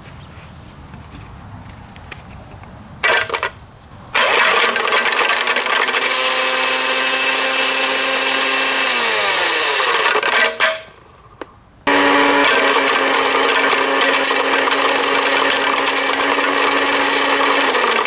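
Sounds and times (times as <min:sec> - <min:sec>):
blender motor whining: 0:04.2 - 0:10.7, 0:11.9 - 0:18.0.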